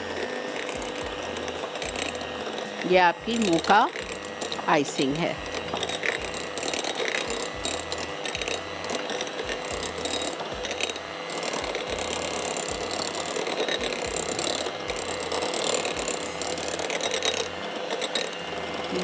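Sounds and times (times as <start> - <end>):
electric hand mixer running: 0.0 - 19.0.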